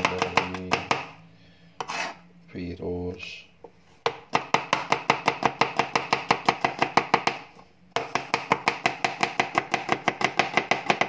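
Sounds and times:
knife chopping on plastic board: 0.0s - 1.2s, 4.0s - 11.0s.

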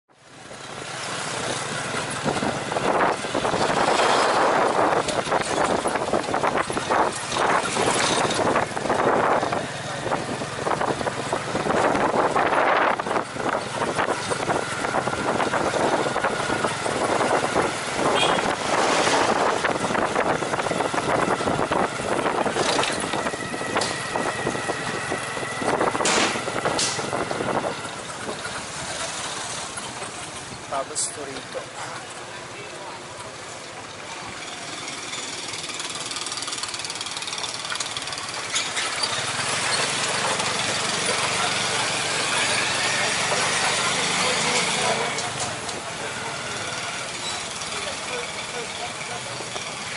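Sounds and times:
road and traffic noise: 0.1s - 49.9s
motorbike engine running: 34.2s - 49.9s.

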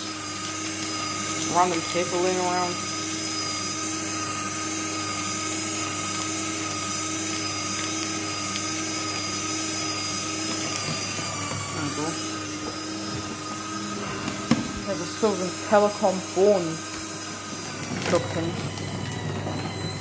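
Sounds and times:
paper shredder running: 0.0s - 20.0s.

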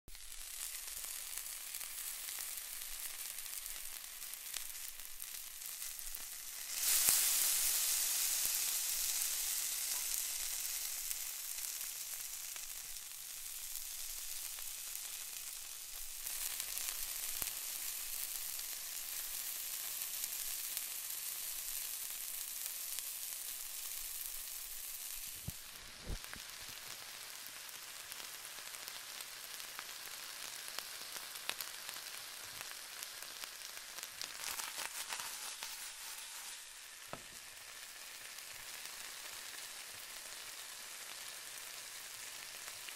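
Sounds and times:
sausage sizzling in a skillet: 0.1s - 42.9s
sausage knocking in pan: 37.1s - 37.5s.

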